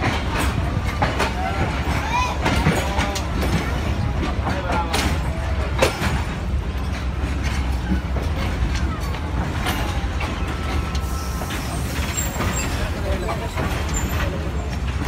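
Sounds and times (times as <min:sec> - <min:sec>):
rattles and clanks: 0:00.0 - 0:15.0
train carriage rumbling: 0:00.0 - 0:15.0.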